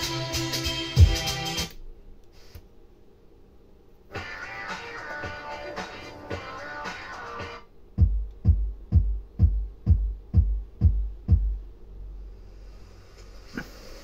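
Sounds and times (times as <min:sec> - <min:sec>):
car stereo music: 0:00.0 - 0:01.7
kick drum beat: 0:01.0 - 0:01.3, 0:07.4 - 0:11.7.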